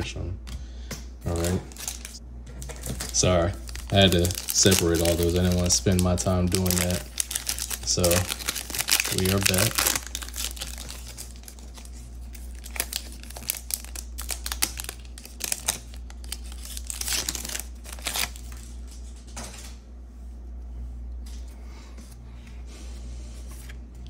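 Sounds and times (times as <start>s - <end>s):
foil wrapper crinkling: 1.3s - 19.3s.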